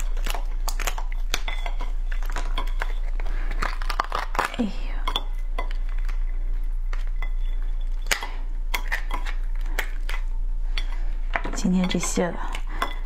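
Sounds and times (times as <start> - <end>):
crab shell cracking: 0.0 - 7.2, 7.8 - 10.5.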